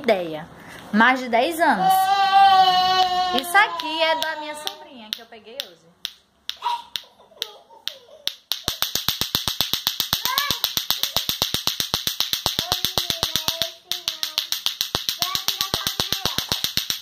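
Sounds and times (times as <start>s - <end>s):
clackers toy balls clacking: 3.6s - 17.0s.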